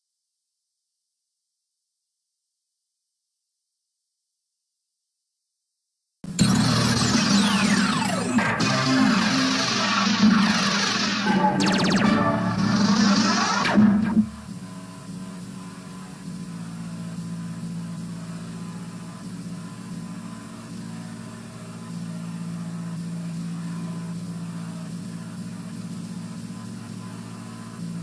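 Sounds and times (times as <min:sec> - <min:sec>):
logo music: 0:06.3 - 0:14.6
low buzzy hum: 0:06.3 - 0:28.0.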